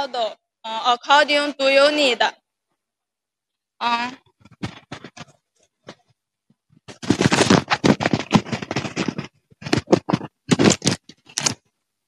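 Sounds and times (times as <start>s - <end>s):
rustling and scraping: 4.3s - 11.7s.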